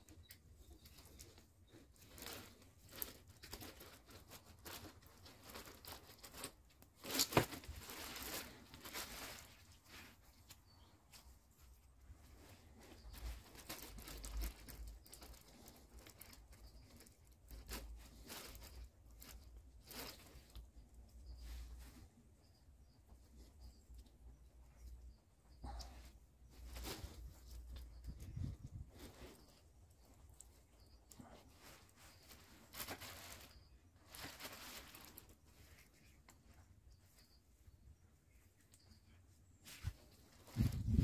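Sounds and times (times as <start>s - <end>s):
leaves rustling: 2.0s - 20.6s, 31.1s - 36.2s, 39.5s - 41.0s.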